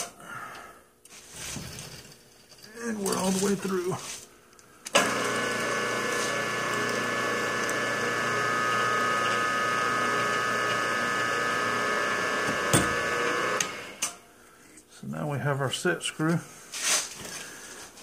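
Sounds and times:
milling machine spindle whining: 4.9 - 14.0.

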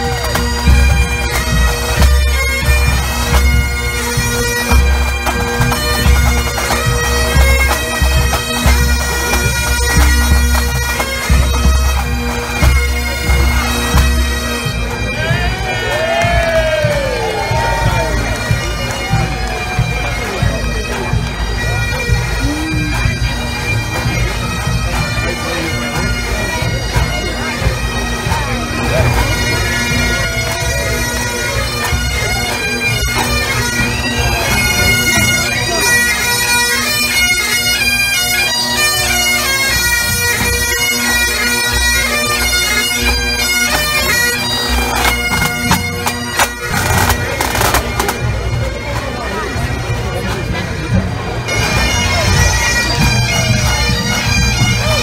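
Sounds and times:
bagpipes playing melody: 0.0 - 55.0
snare and bass drums: 46.7 - 48.2.

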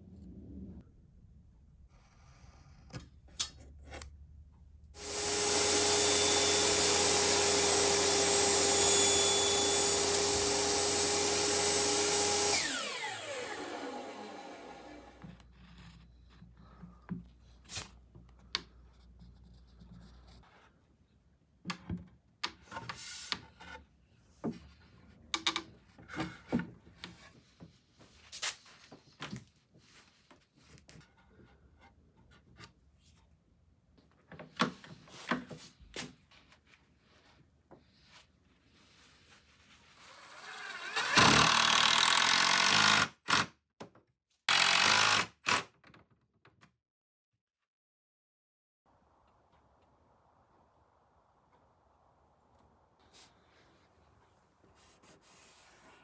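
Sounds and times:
cordless driver driving screws: 5.0 - 10.8, 40.4 - 43.5, 44.5 - 45.7.

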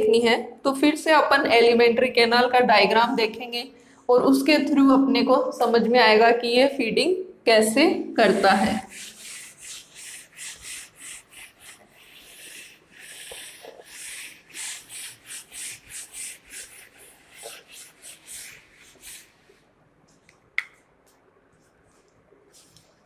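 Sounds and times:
duster wiping whiteboard: 8.2 - 19.7.

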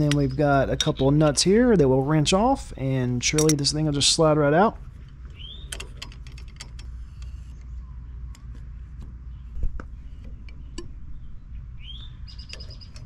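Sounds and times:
low background rumble: 0.0 - 13.0
metallic clicks of wrench: 3.3 - 3.7.

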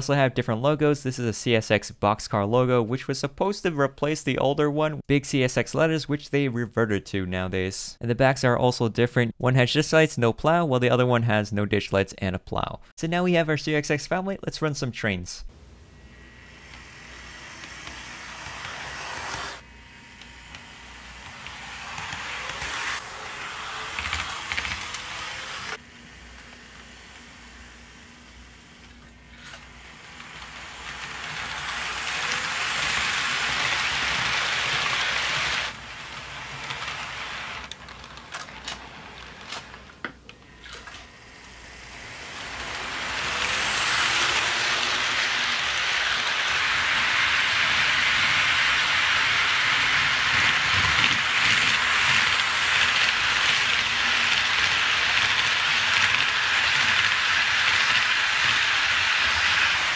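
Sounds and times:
motor hum: 15.5 - 59.9
model train wheels rattling on rails: 16.5 - 19.6, 20.4 - 59.9.

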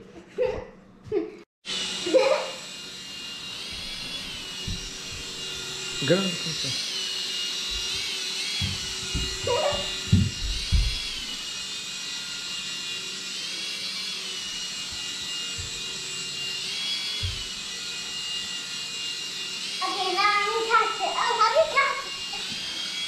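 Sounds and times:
toy propeller motor whirring: 1.7 - 23.0
low thumps: 3.8 - 6.0, 8.6 - 11.4.

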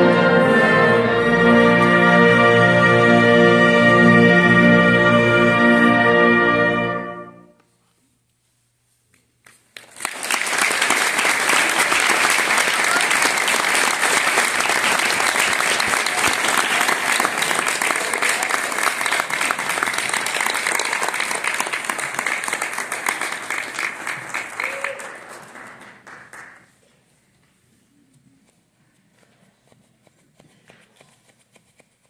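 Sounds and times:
audience applauding: 9.8 - 26.8.

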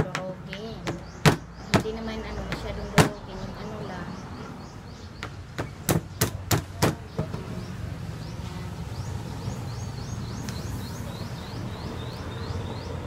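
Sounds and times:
crab claws being pounded: 0.0 - 3.2, 5.2 - 7.4.

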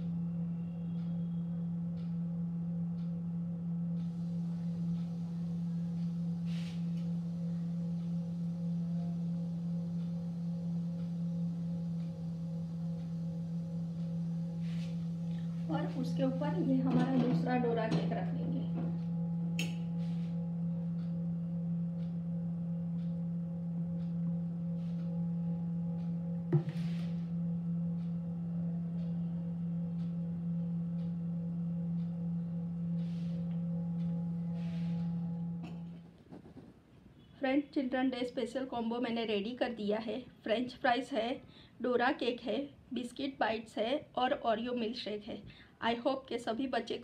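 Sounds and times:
steady low hum: 0.0 - 47.0
soft ticks: 2.0 - 2.2, 3.0 - 3.2, 4.9 - 5.1.

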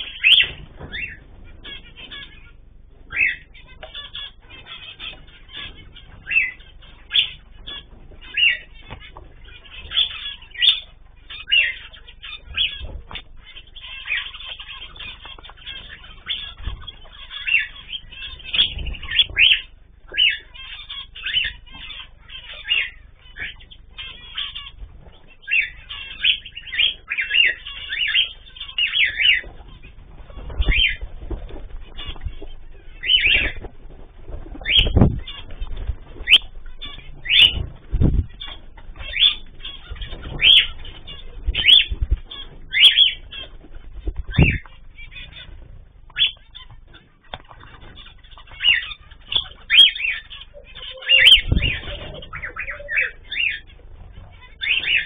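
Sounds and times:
finches chirping: 0.0 - 55.0
wings flapping: 0.0 - 55.0
low thumps of birds landing: 29.4 - 48.1.

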